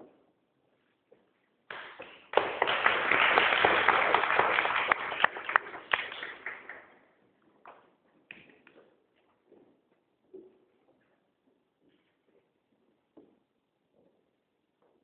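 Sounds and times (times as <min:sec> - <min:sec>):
audience clapping: 0:01.7 - 0:07.0.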